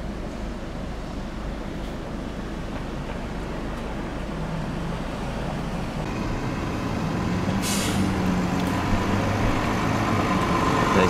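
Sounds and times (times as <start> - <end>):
bus engine approaching: 0.0 - 11.0
air brake hiss: 7.6 - 8.2.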